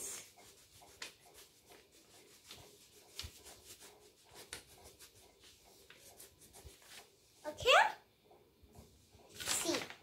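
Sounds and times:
crayon scratching on paper: 0:00.0 - 0:07.2.

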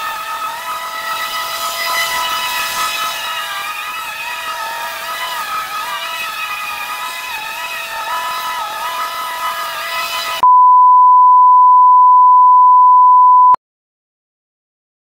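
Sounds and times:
steady electronic beep: 0:10.4 - 0:13.6.

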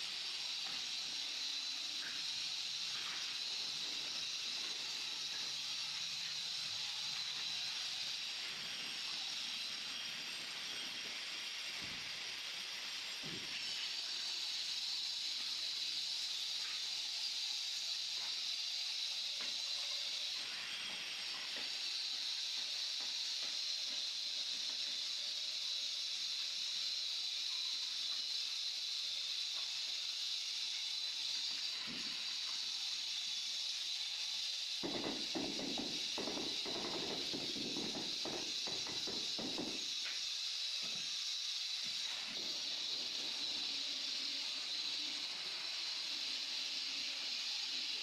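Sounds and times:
high-pitched hiss: 0:00.0 - 0:48.0.

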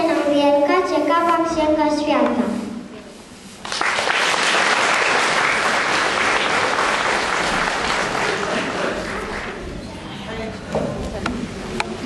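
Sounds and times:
audience applauding: 0:03.6 - 0:09.6.

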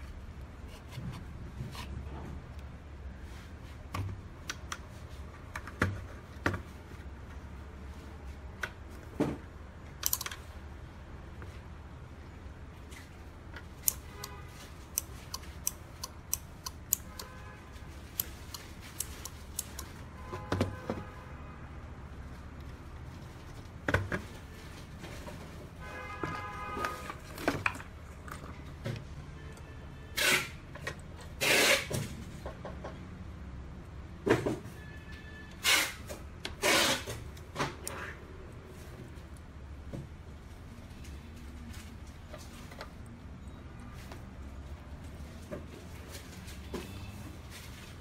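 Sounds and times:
relays clicking: 0:10.0 - 0:10.4, 0:13.6 - 0:17.4, 0:18.0 - 0:20.0.

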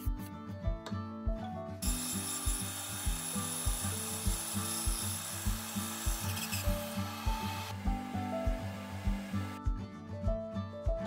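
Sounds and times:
band saw cutting wood: 0:01.8 - 0:09.6.

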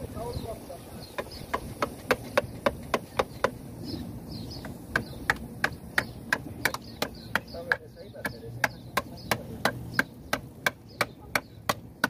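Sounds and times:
hand tool knocking on pipe fitting: 0:01.2 - 0:03.6.

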